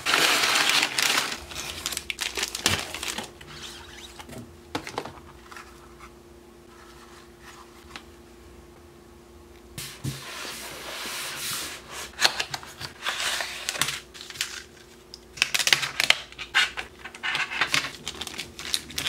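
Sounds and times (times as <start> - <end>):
plastic packaging crinkling: 0.0 - 5.6, 12.1 - 19.0.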